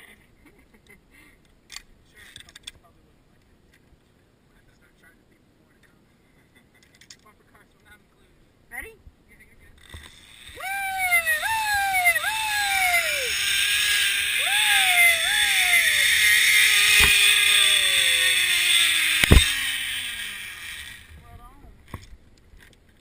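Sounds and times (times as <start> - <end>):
zip line pulley whir: 9.8 - 21.2
short high cries: 10.4 - 21.1
sharp knocks: 19.2 - 19.6.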